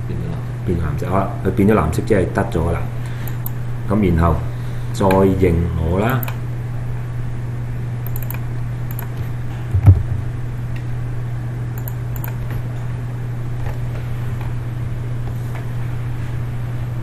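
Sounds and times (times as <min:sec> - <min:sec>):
steady low hum: 0:00.0 - 0:17.0
laptop typing and mouse clicks: 0:03.3 - 0:03.6, 0:08.1 - 0:09.3, 0:11.8 - 0:12.6.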